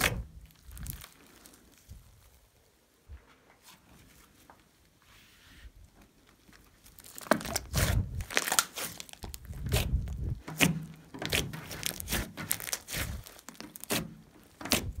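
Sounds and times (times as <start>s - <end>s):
slime squelching: 0.0s - 1.9s, 6.4s - 15.0s.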